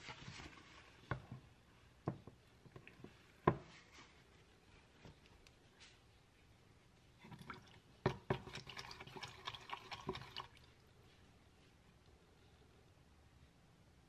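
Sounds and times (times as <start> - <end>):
wet sloshing stirring: 7.2 - 11.1.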